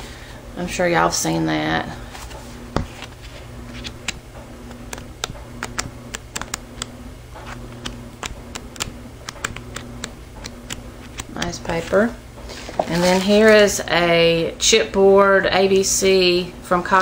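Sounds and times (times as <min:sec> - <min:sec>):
paper pages turning: 0:02.2 - 0:10.1, 0:10.7 - 0:13.7.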